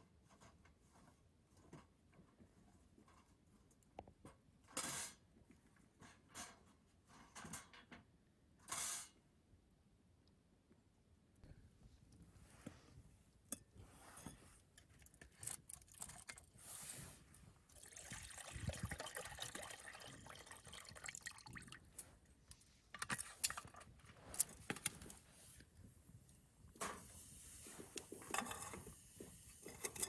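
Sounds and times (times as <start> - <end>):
water pouring into metal pot: 15.4 - 16.5, 17.7 - 22.0.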